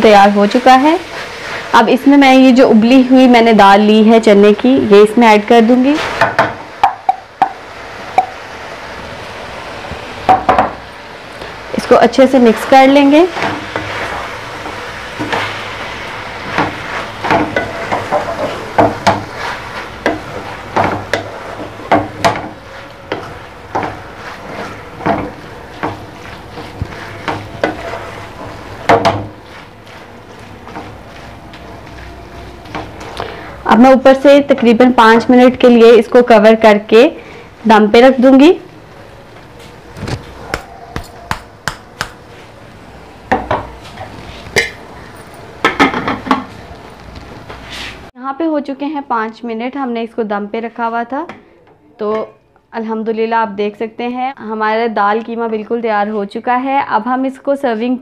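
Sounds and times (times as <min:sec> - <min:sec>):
frying sizzle: 0:00.0 - 0:40.5, 0:41.3 - 0:48.2
spatula scraping metal pan: 0:12.5 - 0:33.1
metal cookware knocks and clanks: 0:45.6 - 0:46.5.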